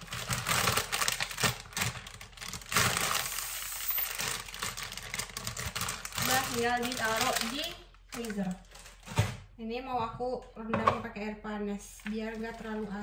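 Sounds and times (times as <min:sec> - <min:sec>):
plastic bag crinkling: 0:00.0 - 0:09.4, 0:12.0 - 0:13.0.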